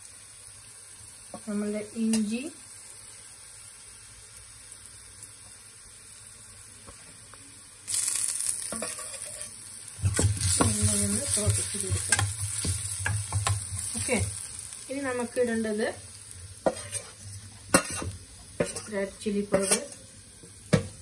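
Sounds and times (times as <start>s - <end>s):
spices sizzling in oil: 0.0s - 21.0s
metal spoon scraping pan: 8.7s - 14.2s, 16.6s - 20.1s.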